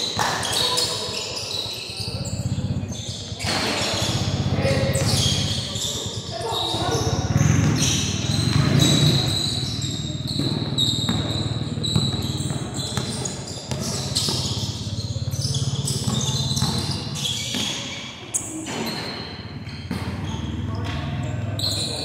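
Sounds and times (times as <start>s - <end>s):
basketball bouncing: 6.9s - 18.0s, 18.8s - 21.8s.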